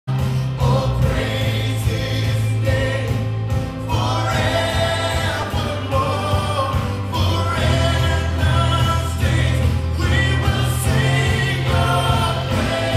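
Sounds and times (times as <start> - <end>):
band playing: 0.1 - 12.9
low electric bass notes: 0.1 - 12.9
man singing into microphone: 3.9 - 12.9.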